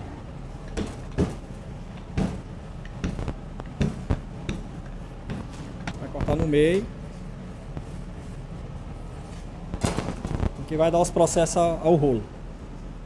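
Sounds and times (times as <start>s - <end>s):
steady low hum: 0.0s - 13.0s
pastry thumping on steel bench: 2.1s - 6.6s.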